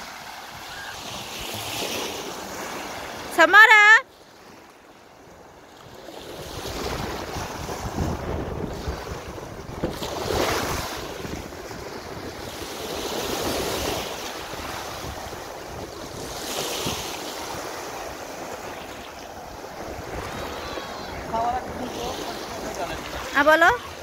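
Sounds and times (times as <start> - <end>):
waves washing on shingle: 5.8 - 24.0
wind buffeting microphone: 6.4 - 18.7.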